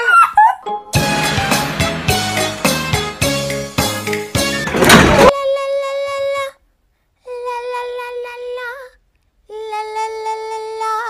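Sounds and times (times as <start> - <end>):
high singing voice: 5.2 - 6.6, 7.2 - 11.0.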